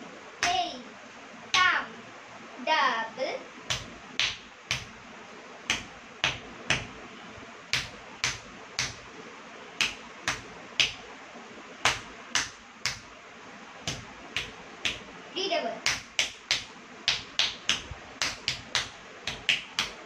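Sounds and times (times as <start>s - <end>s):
bare feet stamping on tiles: 5.7s - 7.0s, 7.7s - 9.1s, 11.9s - 13.1s, 15.9s - 20.0s.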